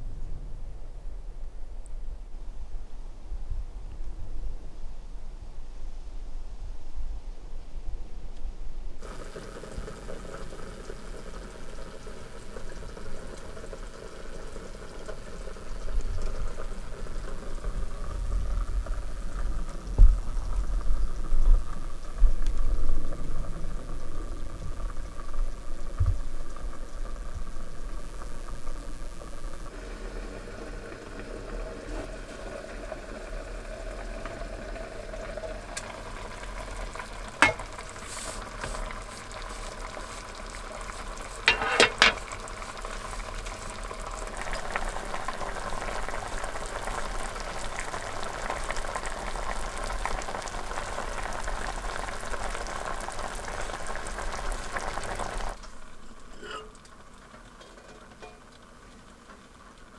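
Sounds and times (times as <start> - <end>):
food bubbling in a pan: 9.0 - 59.9
gas stove hiss: 9.0 - 59.9
metal lid clack: 37.4 - 37.8, 41.5 - 42.3, 56.3 - 56.9, 57.6 - 58.5.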